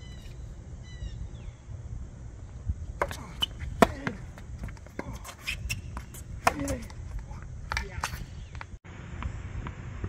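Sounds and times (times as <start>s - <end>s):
short high squeaks: 3.0s - 3.8s
tennis ball struck by racket: 3.0s - 8.6s.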